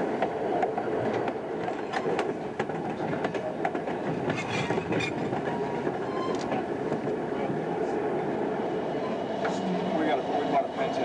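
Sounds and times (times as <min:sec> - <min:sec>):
train coaches rumbling: 0:00.0 - 0:11.0
wheels clicking over rail joints: 0:00.2 - 0:07.1.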